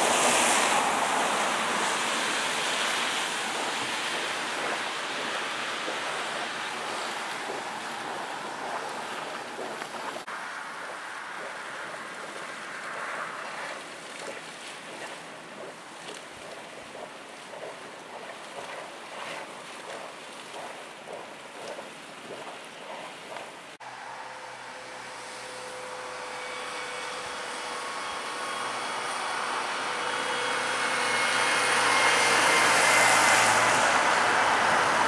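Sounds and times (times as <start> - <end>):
wind on microphone: 0.0 - 23.7
water rushing: 0.0 - 24.2, 28.4 - 35.0.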